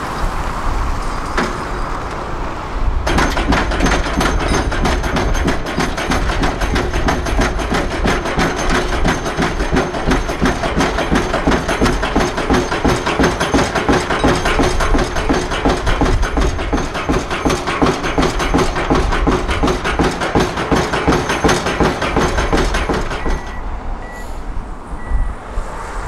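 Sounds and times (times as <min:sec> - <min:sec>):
hydraulic hammer pounding: 0:03.0 - 0:23.8.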